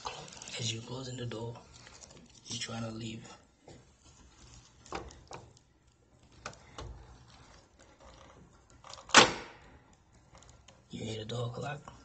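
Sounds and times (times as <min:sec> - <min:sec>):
door latch snapping shut: 0:09.1 - 0:09.6.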